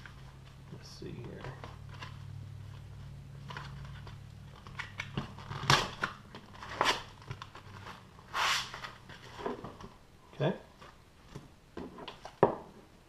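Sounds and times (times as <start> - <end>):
paper pack crinkling: 1.2 - 9.8
cardboard ripping: 3.4 - 9.8.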